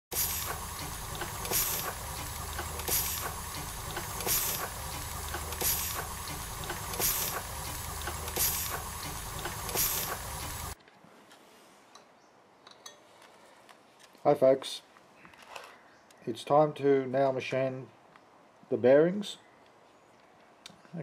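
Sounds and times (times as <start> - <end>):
steam engine rumble: 0.1 - 10.8
steam hissing: 0.1 - 10.8.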